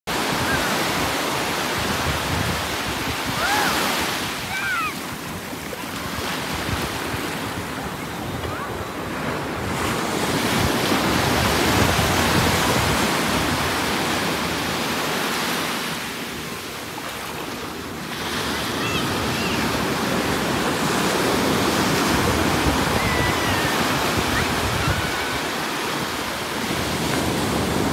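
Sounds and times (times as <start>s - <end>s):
ocean surf washing up beach: 0.1s - 27.9s
wind buffeting microphone: 0.3s - 3.8s, 5.1s - 14.7s, 20.2s - 27.9s
brief high cries: 3.3s - 5.0s.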